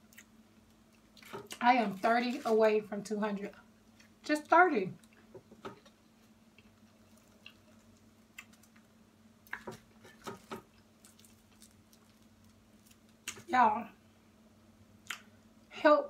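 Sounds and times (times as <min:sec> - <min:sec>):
wet chewing sounds: 0:06.5 - 0:13.5.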